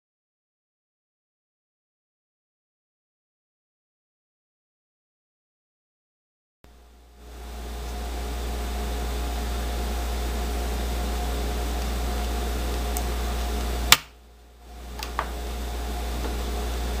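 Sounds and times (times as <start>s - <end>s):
low background hum with whine: 6.7s - 17.0s.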